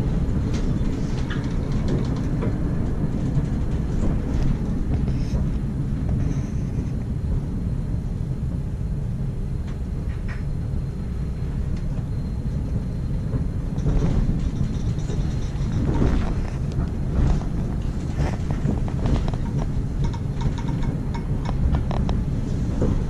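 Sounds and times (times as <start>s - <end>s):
tram wheels rumbling: 0.0s - 23.0s
high-pitched rattles and squeaks: 13.8s - 21.6s.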